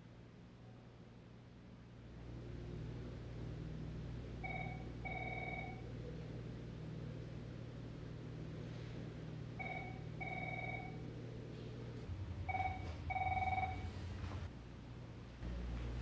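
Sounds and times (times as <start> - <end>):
low steady hum: 0.0 - 16.0
electronic telephone ringing: 4.4 - 5.8, 9.6 - 11.0, 12.5 - 14.0.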